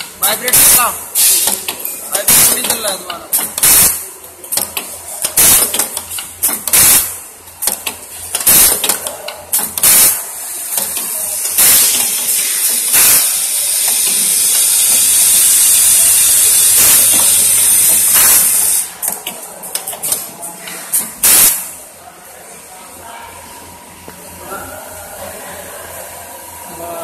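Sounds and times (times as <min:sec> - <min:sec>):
steady high air hiss: 0:00.2 - 0:02.7, 0:09.8 - 0:19.0
short pneumatic air hisses: 0:00.5 - 0:01.6, 0:03.4 - 0:04.0, 0:05.4 - 0:05.8, 0:06.4 - 0:07.1, 0:08.4 - 0:08.9, 0:09.8 - 0:10.2, 0:10.8 - 0:18.9, 0:20.9 - 0:21.7.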